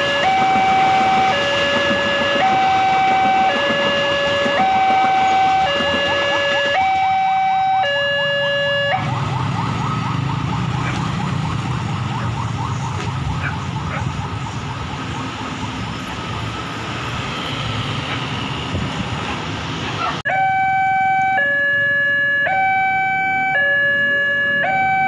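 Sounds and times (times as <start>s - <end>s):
two-tone crossing alarm: 0.0s - 16.4s, 20.3s - 25.0s
train passing: 0.0s - 20.2s
motorcycle and car engines: 0.0s - 25.0s.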